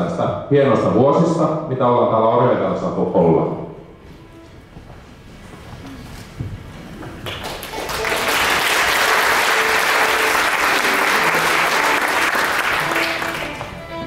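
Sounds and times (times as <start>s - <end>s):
faint instrument notes: 2.8s - 6.4s, 7.8s - 14.0s
audience applauding: 7.2s - 14.0s.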